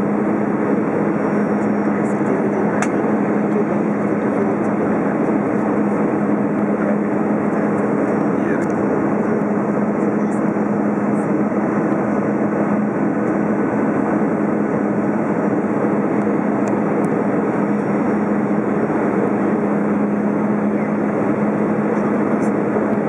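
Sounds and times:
airplane cabin noise: 0.0 - 23.0
constant low hum: 0.0 - 23.0.

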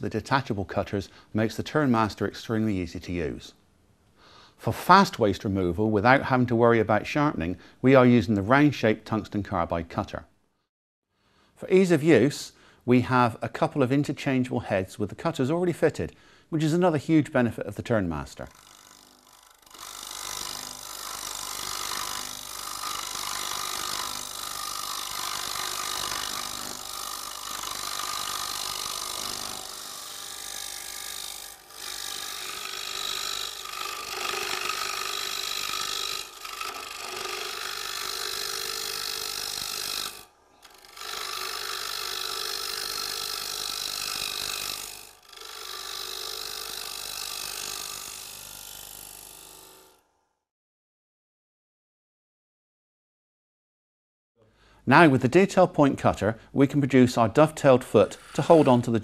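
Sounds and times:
cutter rasping on wood: 18.5 - 50.0
wood lathe spinning: 18.5 - 50.2.

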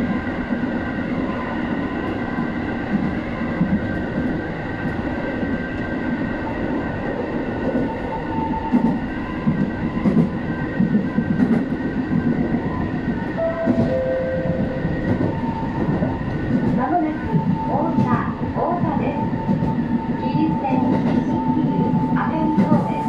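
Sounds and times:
train rumble and drone: 0.0 - 23.0
rail joints clacking: 8.6 - 23.0.

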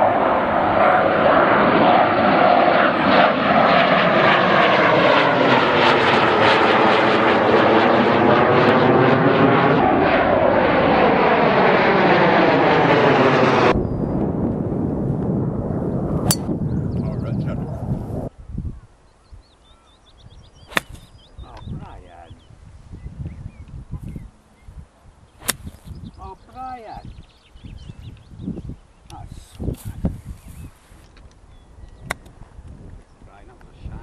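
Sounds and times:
jet flying overhead: 0.0 - 18.3
golf club striking ball: 16.2 - 16.6, 20.6 - 21.2, 25.4 - 26.0.

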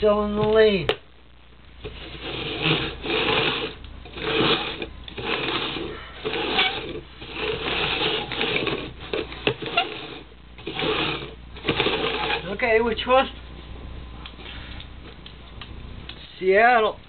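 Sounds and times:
plastic cups scraping on wooden floor: 1.8 - 12.6.

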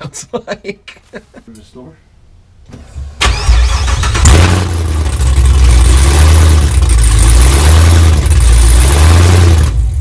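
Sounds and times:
loud car engine running: 4.1 - 10.0.

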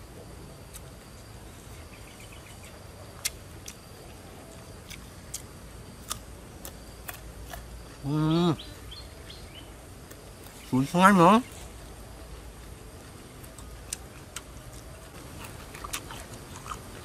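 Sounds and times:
steady outdoor hiss: 0.0 - 17.0
crisp chewing clicks: 13.4 - 17.0.

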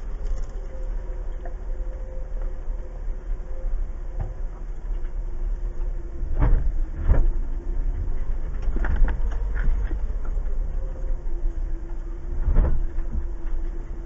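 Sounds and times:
engine low rumble: 0.0 - 14.0
suspension knocks and clunks: 6.3 - 10.1.

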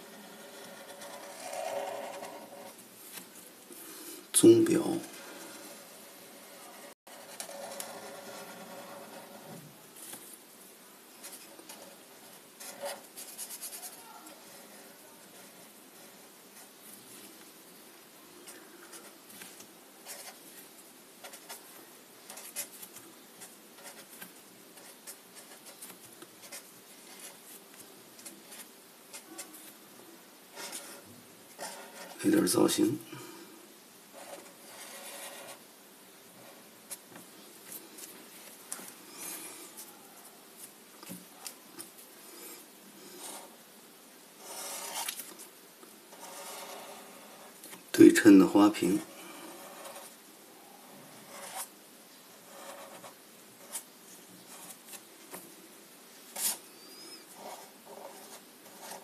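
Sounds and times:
marker scratching on paper: 0.0 - 2.8, 5.5 - 9.6, 11.2 - 16.7, 18.9 - 20.4, 21.2 - 27.4, 30.5 - 32.2, 34.1 - 35.6, 43.1 - 43.6, 44.4 - 45.4, 46.1 - 47.6, 49.4 - 50.2, 50.9 - 51.7, 52.3 - 55.4, 56.3 - 59.0.

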